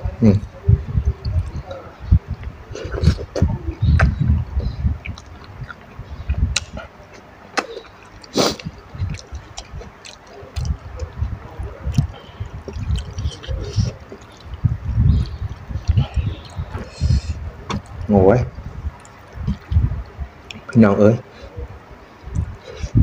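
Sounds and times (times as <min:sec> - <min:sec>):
mouth clicks and smacks: 0:00.8 - 0:20.8, 0:22.3 - 0:23.0
chewing and slurping noodles: 0:07.7 - 0:18.0.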